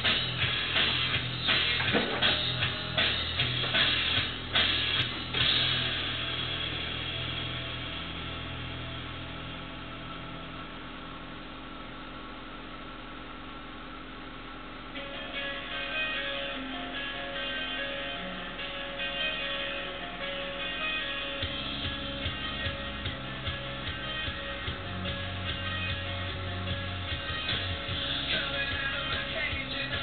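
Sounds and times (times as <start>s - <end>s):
guitar and drums music: 0.0s - 9.0s, 15.0s - 30.0s.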